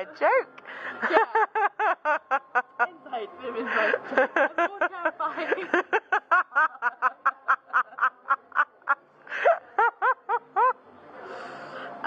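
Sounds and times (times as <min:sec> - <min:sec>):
young woman laughing: 0:01.0 - 0:03.0, 0:03.6 - 0:10.8.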